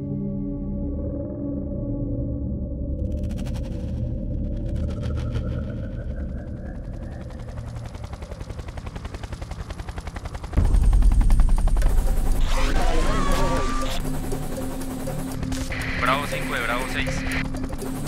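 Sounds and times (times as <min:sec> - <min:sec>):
loud deep pounding: 0:10.6 - 0:14.4.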